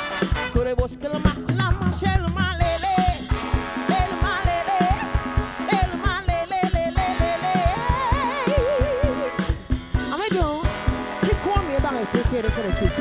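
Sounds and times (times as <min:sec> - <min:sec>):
funk band playing: 0:00.0 - 0:13.0
woman singing with vibrato: 0:00.5 - 0:09.4.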